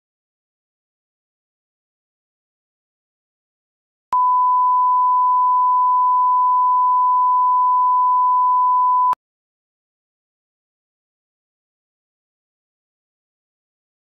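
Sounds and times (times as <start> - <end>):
test-tone beep: 4.2 - 9.2.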